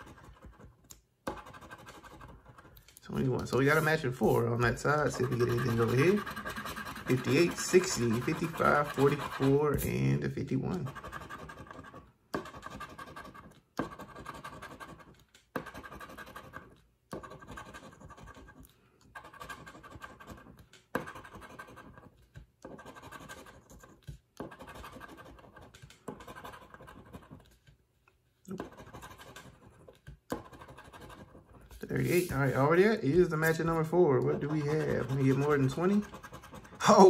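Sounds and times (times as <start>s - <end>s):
scratcher rasping on ticket: 1.3s - 18.4s, 28.5s - 37.0s.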